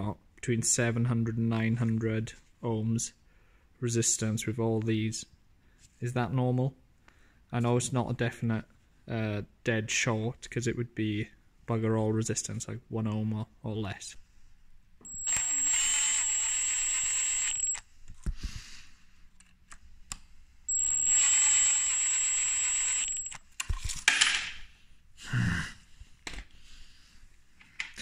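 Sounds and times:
cordless driver whining: 15.1s - 17.8s, 20.7s - 23.4s.

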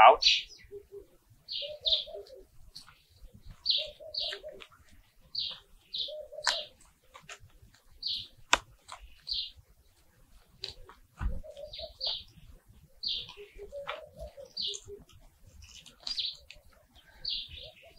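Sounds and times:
birds chirping: 0.0s - 17.9s
hands digging in soil clicks: 6.4s - 9.3s, 10.4s - 11.7s, 13.2s - 16.9s.

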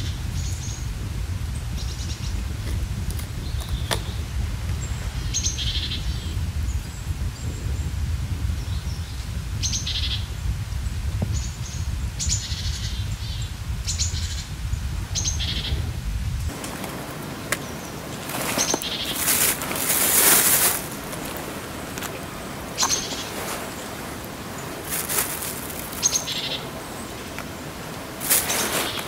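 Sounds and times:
low rumble: 0.0s - 17.9s
rustling in dry leaves: 0.0s - 29.0s
small birds calling: 1.6s - 7.9s, 8.6s - 10.3s, 11.3s - 15.9s, 16.9s - 29.0s.

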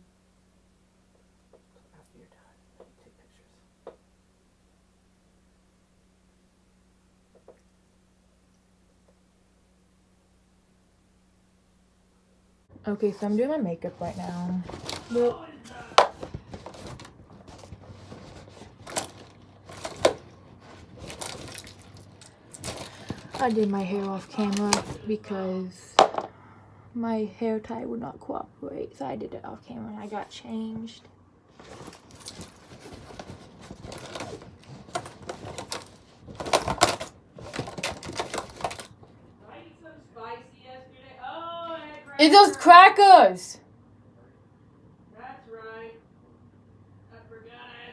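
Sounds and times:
small objects clattering and rustling: 13.3s - 25.1s, 31.5s - 39.2s
makeup items clicking and rattling: 15.9s - 25.0s, 31.6s - 39.0s.

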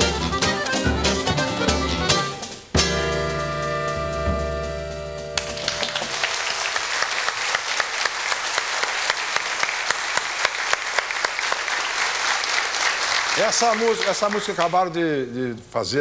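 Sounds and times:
band chord ringing out: 0.0s - 6.1s
audience applauding: 5.4s - 14.9s.

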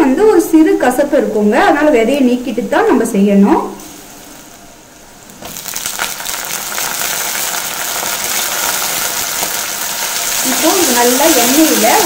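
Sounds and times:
frying sizzle in hot oil: 3.8s - 12.0s.

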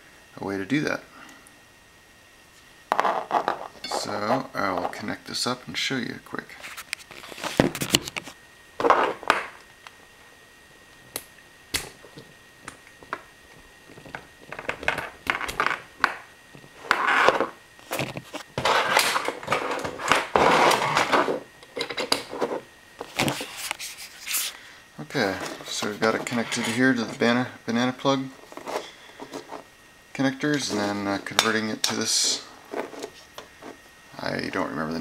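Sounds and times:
rustling and scraping: 2.6s - 5.0s, 6.5s - 9.2s, 16.6s - 24.6s, 25.2s - 27.3s, 28.3s - 29.7s, 30.6s - 34.0s.

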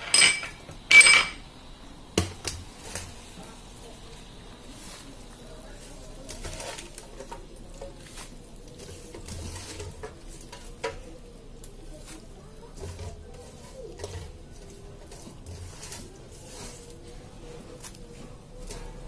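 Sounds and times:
leaves dropping into a pan: 2.1s - 17.1s.

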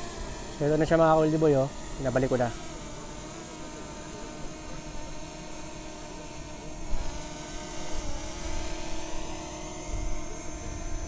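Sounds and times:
drone propellers buzzing: 0.0s - 11.0s.

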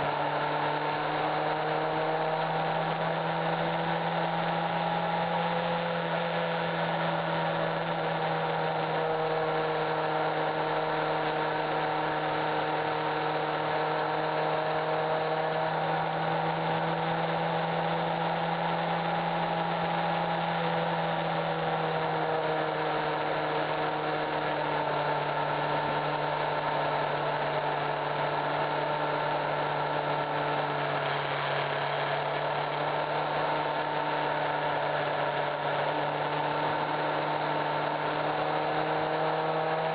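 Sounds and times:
motorcycle engine cruising: 0.0s - 39.9s.

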